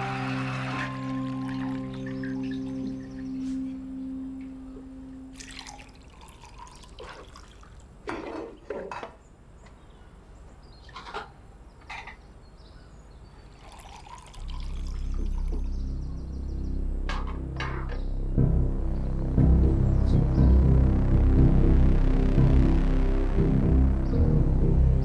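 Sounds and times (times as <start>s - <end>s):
soft music: 0.0s - 6.2s, 14.2s - 25.0s
juice pouring into a glass: 5.4s - 7.9s, 13.6s - 15.6s.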